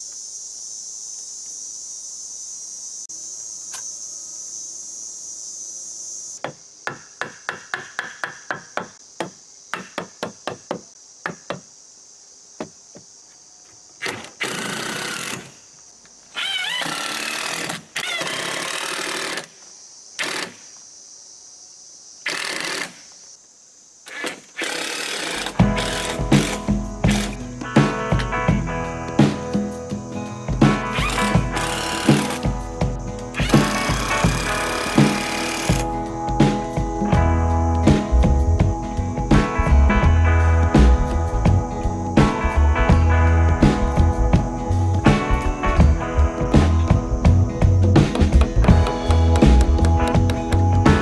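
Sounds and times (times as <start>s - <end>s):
high insect drone: 0.0s - 51.0s
impact driver hammering screws: 22.3s - 23.0s, 31.0s - 32.4s, 33.4s - 35.8s.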